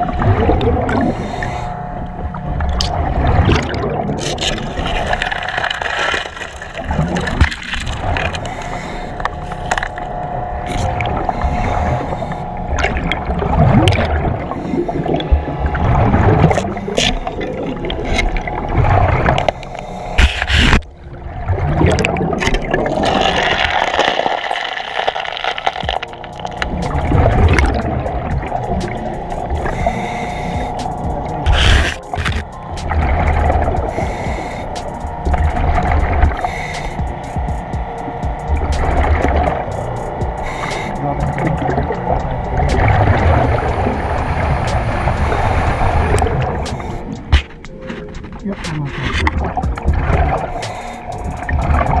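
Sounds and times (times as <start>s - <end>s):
exhaust bubbles rumbling: 0.0s - 52.0s
steady hum: 0.0s - 52.0s
regulator hissing: 26.0s - 48.9s.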